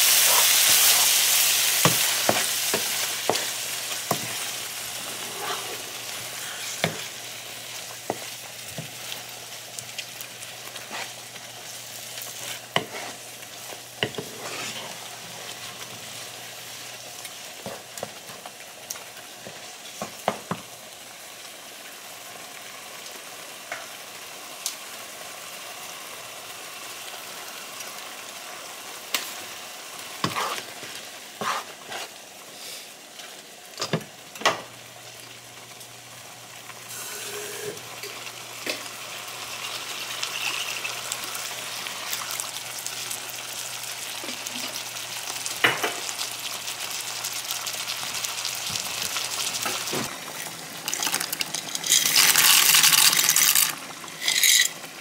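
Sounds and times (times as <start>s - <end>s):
meat sauce sizzling in frying pan: 0.0s - 55.0s
wooden spoon stirring and knocking pan: 1.7s - 4.5s, 5.4s - 7.1s.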